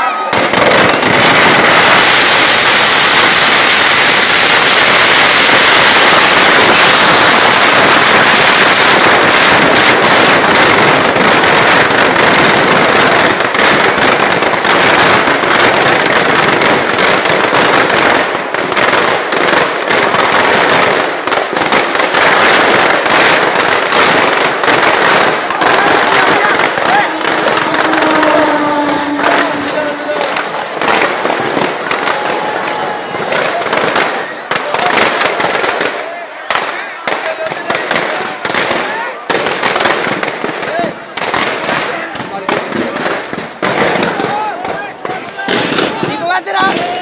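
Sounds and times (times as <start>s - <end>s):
firecrackers crackling: 0.0s - 47.0s.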